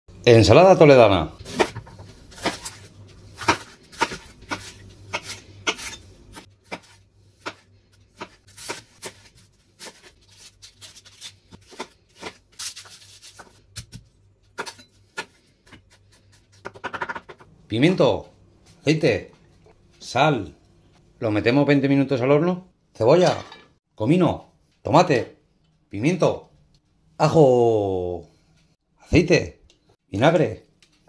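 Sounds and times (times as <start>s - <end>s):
knife chopping on wooden board: 3.4s - 10.1s.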